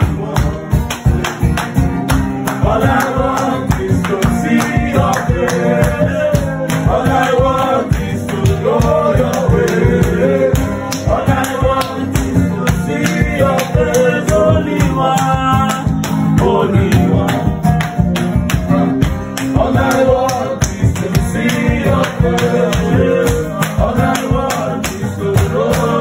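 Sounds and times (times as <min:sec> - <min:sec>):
acoustic guitar: 0:00.0 - 0:26.0
hand shaker rhythm: 0:00.0 - 0:26.0
man singing gospel: 0:02.6 - 0:17.6, 0:19.5 - 0:26.0.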